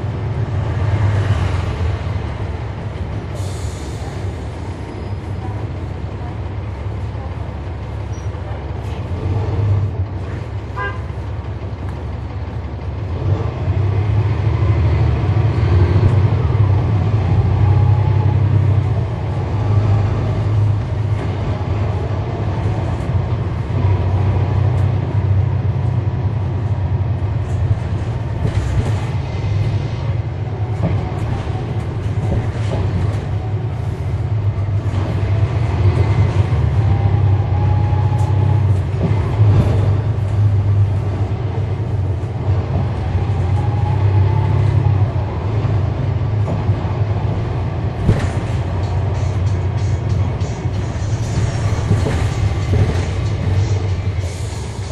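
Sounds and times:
bus engine drone: 0.0 - 54.9
road noise: 0.0 - 54.9
interior rattles and clicks: 26.6 - 36.7, 38.1 - 54.9.

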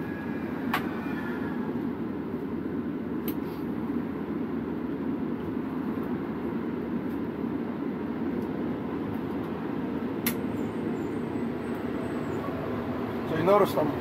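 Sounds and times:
low machinery rumble: 0.0 - 14.0
sharp click: 10.2 - 10.4.

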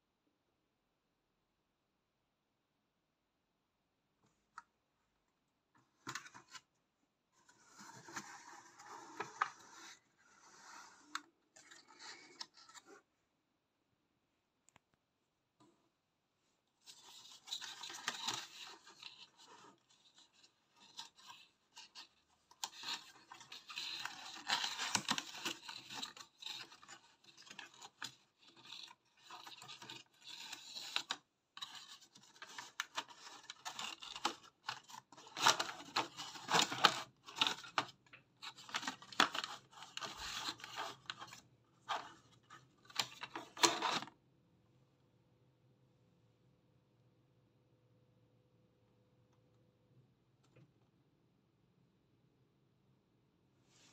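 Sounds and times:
packaging scraping and rustling: 16.8 - 44.1.

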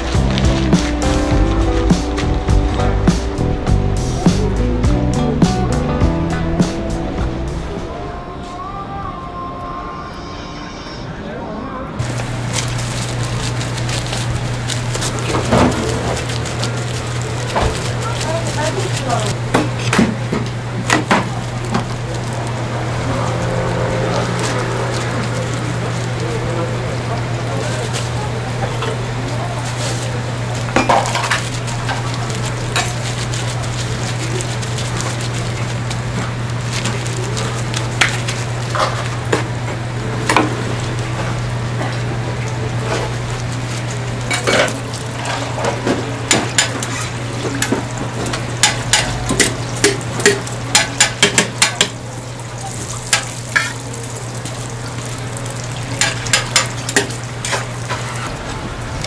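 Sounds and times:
dough sizzling in hot oil: 12.0 - 59.0
metal utensils clicking on griddle: 30.8 - 35.7, 44.3 - 52.0, 52.7 - 54.1, 55.8 - 58.3.

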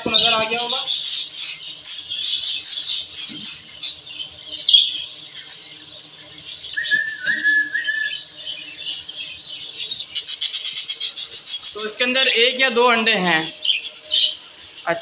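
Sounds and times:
budgies chattering and squawking: 0.0 - 15.0
wavering whistled note: 6.8 - 8.2.

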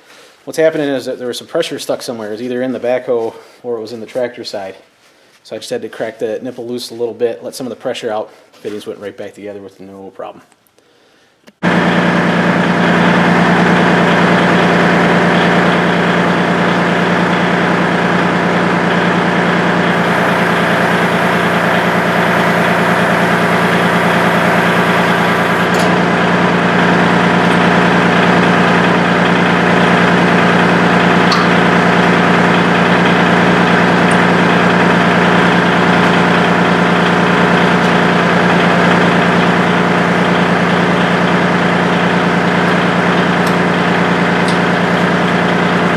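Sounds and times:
tractor diesel engine idling: 11.6 - 45.9.

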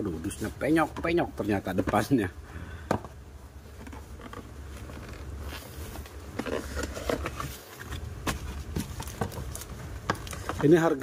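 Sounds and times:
steady low hum: 0.0 - 11.0
paper wrapping rustling: 3.7 - 11.0.

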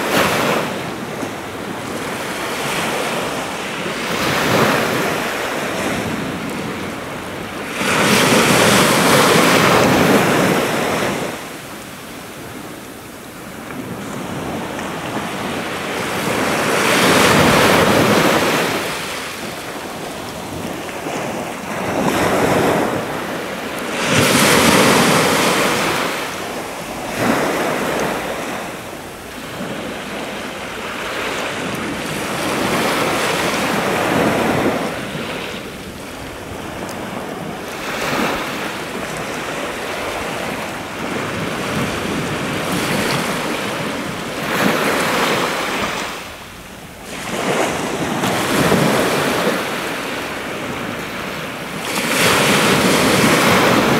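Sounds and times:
sea waves breaking on shore: 0.0 - 53.9.

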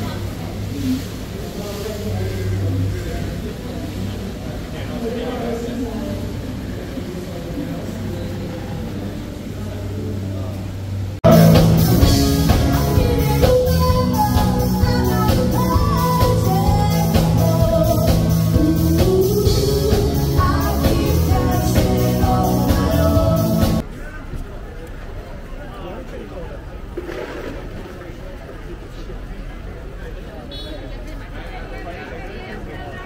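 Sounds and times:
electric guitars: 10.6 - 23.8
drum kit beat: 11.2 - 23.8
woman singing: 11.3 - 23.8.

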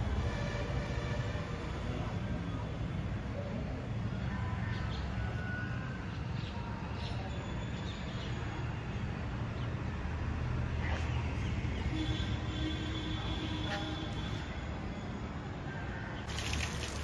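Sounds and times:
distant traffic rumble: 0.0 - 17.0.

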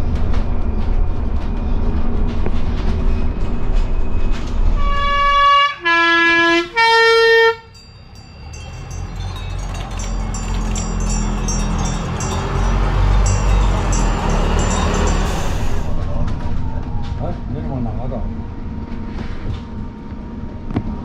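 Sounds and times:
bus engine rumble: 0.0 - 21.0
three-tone bus horn: 4.8 - 7.8.

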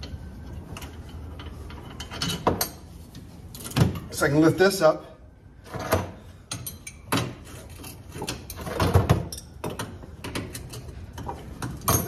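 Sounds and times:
wrench clanking on metal parts: 0.8 - 2.9, 5.7 - 12.0.

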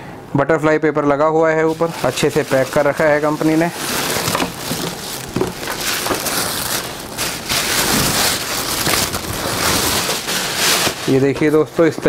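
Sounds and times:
tissue paper rustling: 1.6 - 12.0.

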